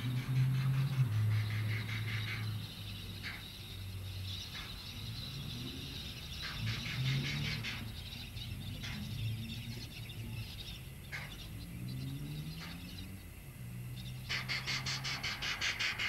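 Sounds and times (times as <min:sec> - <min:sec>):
steam locomotive rumble: 0:00.0 - 0:08.0, 0:14.2 - 0:16.0
bird chirps: 0:00.0 - 0:16.0.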